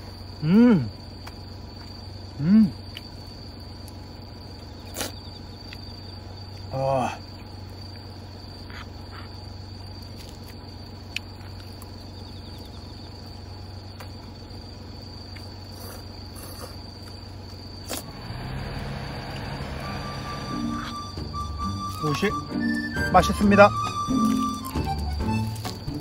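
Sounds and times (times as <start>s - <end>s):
crickets chirring: 0.0s - 26.0s.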